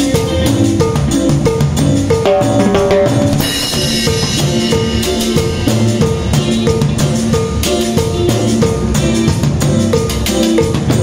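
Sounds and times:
band music with drums: 0.0 - 11.0
cymbal crash: 2.3 - 8.9.

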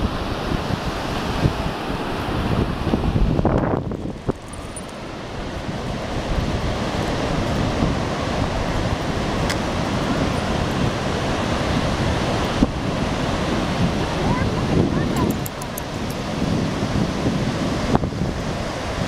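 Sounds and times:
ocean surf washing onto beach: 0.0 - 19.0
wind buffeting microphone: 0.0 - 19.0.

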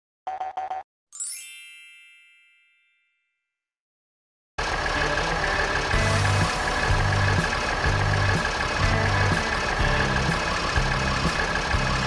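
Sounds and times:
bell-like chime: 1.2 - 3.6
cartoon truck engine effect: 4.6 - 12.0.

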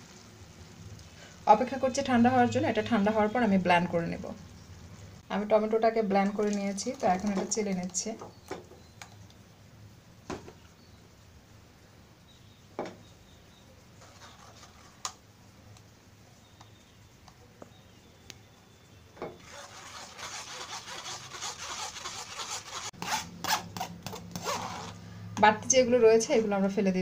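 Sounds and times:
spatula scraping through sieve: 14.0 - 15.1, 19.4 - 25.0.

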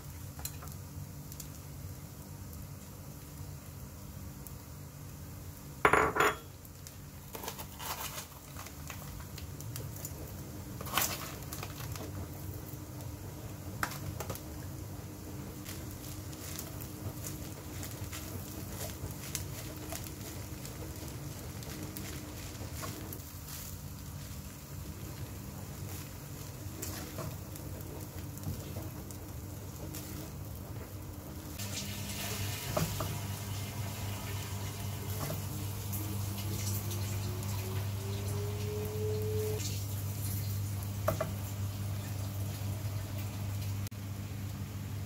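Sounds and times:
utensils clinking on cookware: 5.9 - 6.5.

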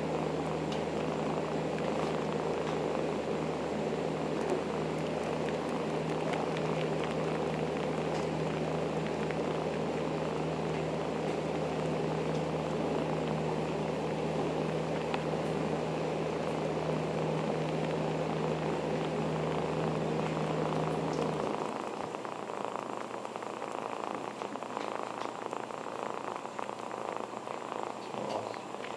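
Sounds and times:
kitten purring: 0.0 - 28.9
faint clicks: 4.4 - 9.8, 20.9 - 22.3, 24.3 - 25.5.

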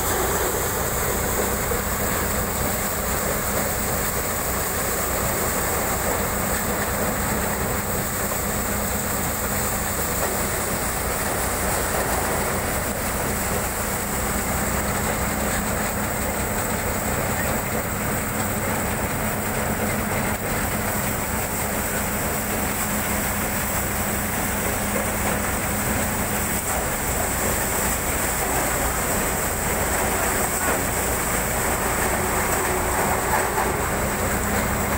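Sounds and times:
tractor engine running: 0.0 - 34.9.

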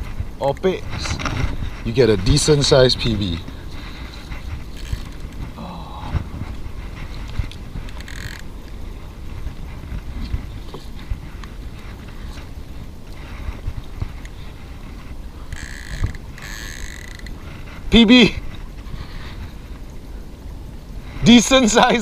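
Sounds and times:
low microphone rumble: 0.0 - 16.5
knocks and rustles over rocks: 0.0 - 20.0.

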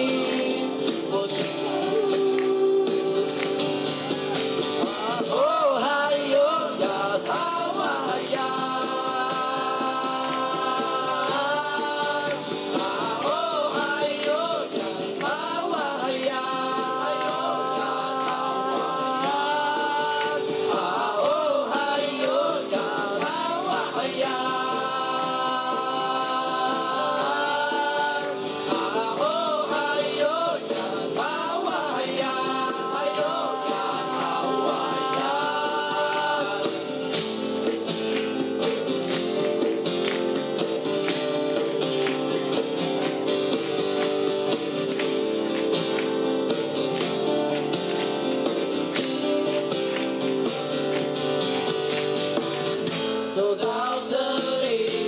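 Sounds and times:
male voices singing together: 0.0 - 40.2, 52.9 - 55.0
strummed acoustic guitar: 0.0 - 55.0.

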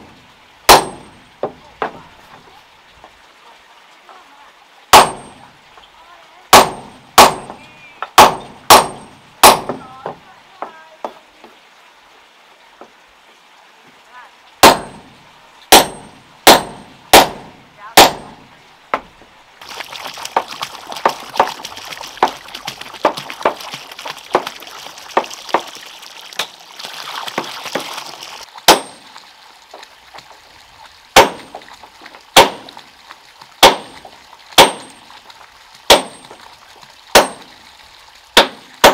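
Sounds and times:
hammer striking nails into wood: 15.7 - 17.4, 33.6 - 33.9.

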